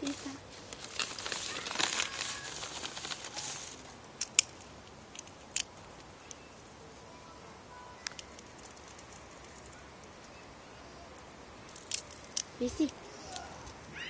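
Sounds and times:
rustling and crinkling: 0.0s - 10.5s, 11.2s - 14.0s
sharp clicks: 8.0s - 10.4s.

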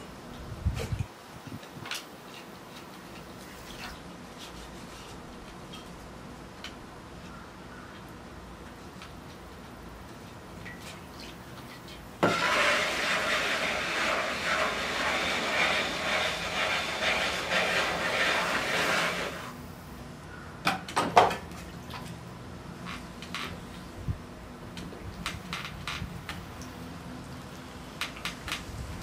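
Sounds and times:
loud hissing rushing noise: 12.2s - 19.6s.

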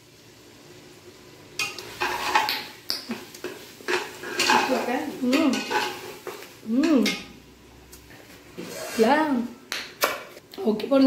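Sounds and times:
metal ladle scraping steel pot: 3.9s - 6.2s, 8.6s - 9.3s.

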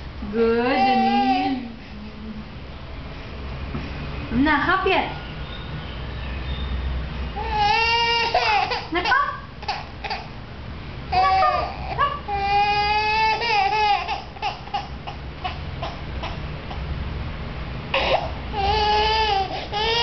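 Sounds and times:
infant crying: 0.6s - 1.7s, 7.4s - 10.3s, 11.1s - 16.4s, 18.0s - 20.0s.

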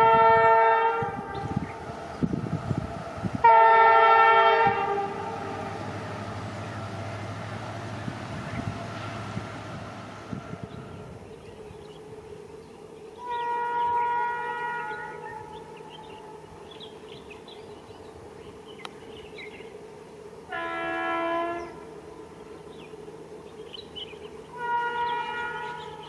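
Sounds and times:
locomotive horn blast: 0.0s - 1.9s, 3.4s - 6.3s, 13.2s - 16.5s, 20.5s - 21.9s, 24.5s - 26.0s
steady mechanical hum: 0.0s - 26.0s.

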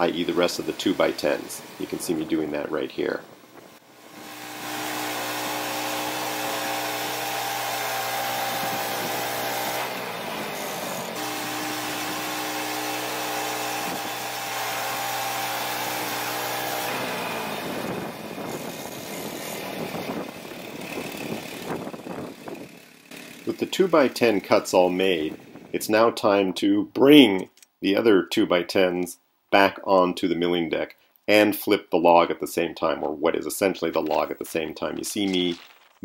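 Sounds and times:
bandsaw mill cutting wood: 0.0s - 25.7s.

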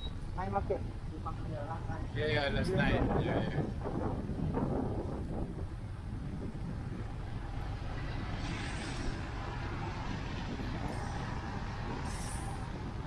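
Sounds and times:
low rumble of passing vehicles: 0.0s - 13.0s
vehicle passing with hiss: 6.5s - 13.0s.

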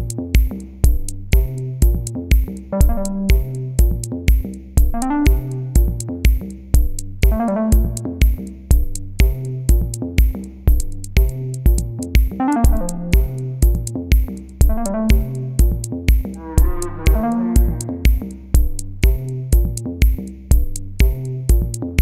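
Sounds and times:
drum machine beat: 0.0s - 22.0s
synthesizer chords: 2.8s - 3.6s, 5.0s - 6.0s, 7.2s - 8.3s, 12.4s - 13.6s, 14.7s - 15.8s, 16.4s - 18.4s.

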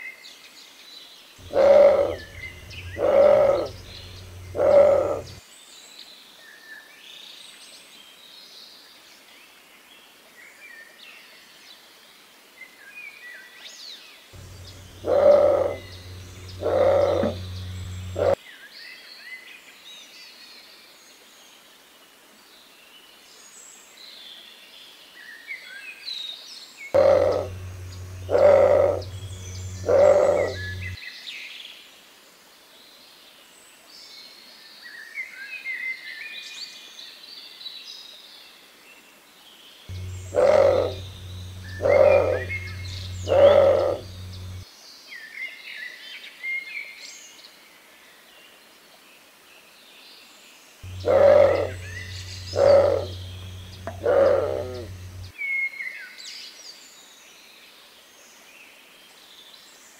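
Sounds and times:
heron low hoarse grunts: 1.4s - 5.4s, 14.4s - 18.4s, 27.0s - 31.0s, 39.9s - 44.6s, 50.9s - 55.3s
small birds chirping faintly: 1.4s - 5.4s, 14.4s - 18.4s, 27.0s - 31.0s, 39.9s - 44.6s, 50.8s - 55.3s.

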